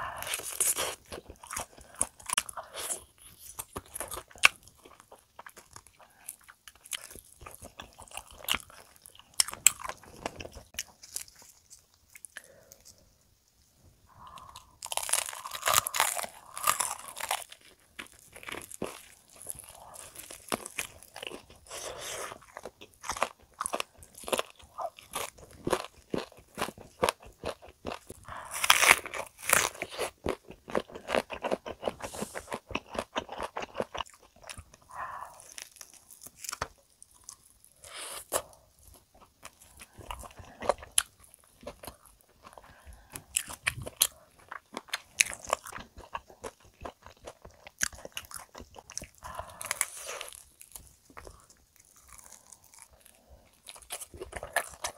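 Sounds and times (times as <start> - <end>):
crunching fried chicken: 0.0 - 13.0, 14.2 - 54.9
chewing: 0.0 - 13.1, 14.1 - 54.9.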